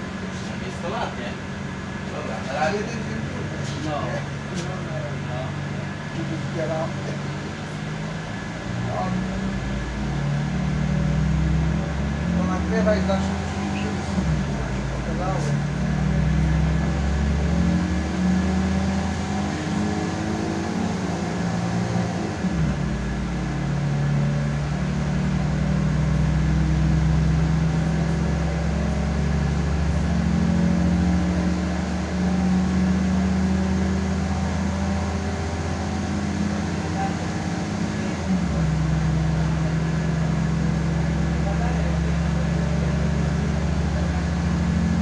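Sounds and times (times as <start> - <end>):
railcar engine drone: 0.0 - 10.6, 11.4 - 17.4.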